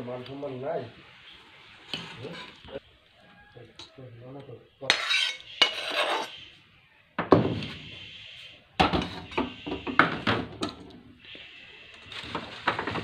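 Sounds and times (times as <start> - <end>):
metal spoon scraping steel bowl: 4.9 - 6.6.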